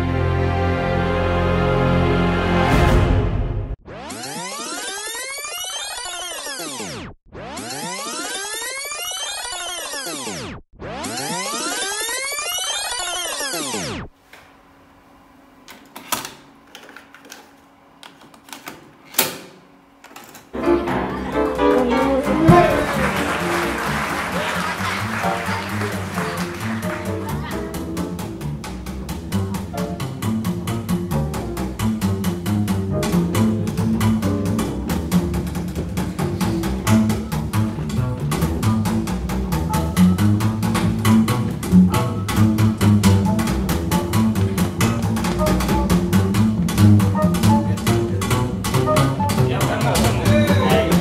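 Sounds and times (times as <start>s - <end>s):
live band music from cassette tape: 20.6s - 51.0s.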